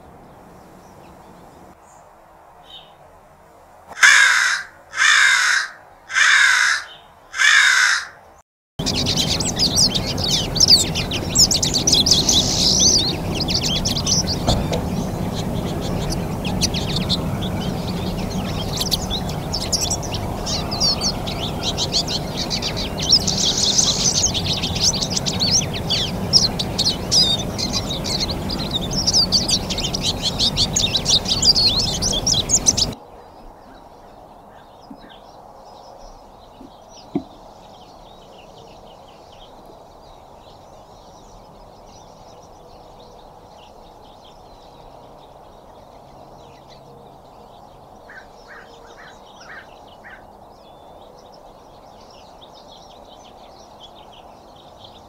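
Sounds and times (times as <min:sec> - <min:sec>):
crow cawing: 0:03.9 - 0:08.2, 0:48.1 - 0:50.3
flock of birds twittering: 0:04.0 - 0:08.2, 0:08.8 - 0:55.0
steady low rumble: 0:08.8 - 0:33.0.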